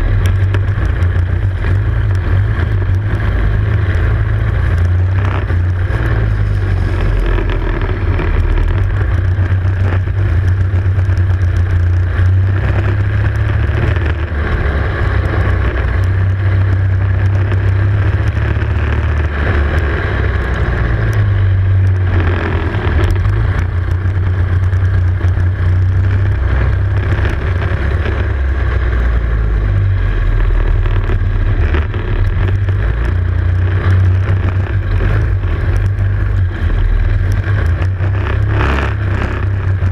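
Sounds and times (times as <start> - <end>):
racing kart engine revving: 0.0 - 39.9.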